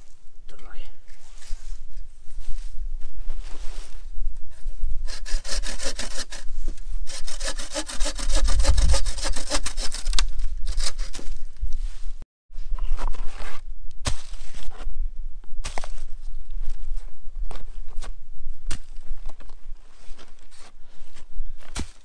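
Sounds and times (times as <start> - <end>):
bow saw cutting wood: 5.0 - 11.2.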